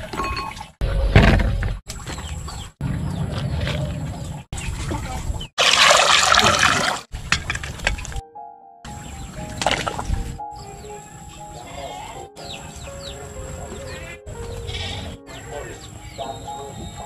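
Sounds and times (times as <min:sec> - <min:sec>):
water poured into metal pot: 0:05.6 - 0:07.0.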